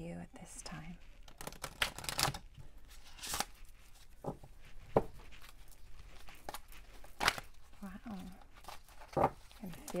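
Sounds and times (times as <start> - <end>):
cards being shuffled: 1.1 - 10.0.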